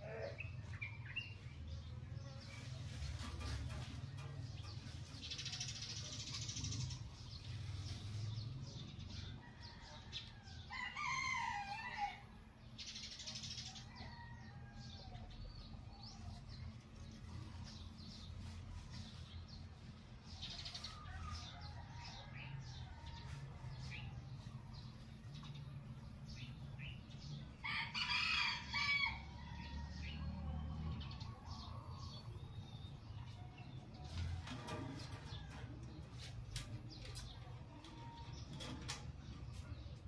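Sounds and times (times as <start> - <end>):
rooster crowing: 9.2 - 12.3, 27.6 - 30.5.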